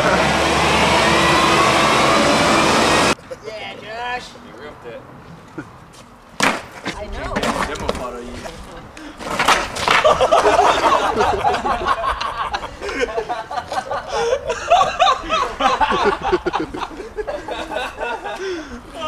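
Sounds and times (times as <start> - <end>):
people laughing: 9.8 - 19.0.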